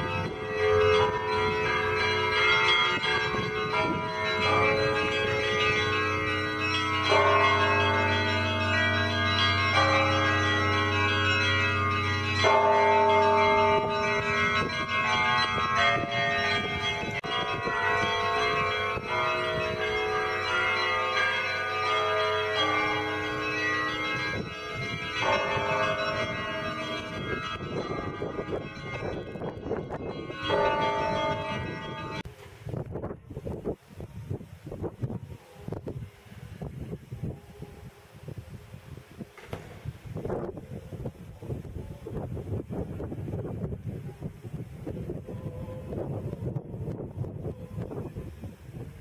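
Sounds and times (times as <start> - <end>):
deep low bell ringing: 0.0 - 32.3.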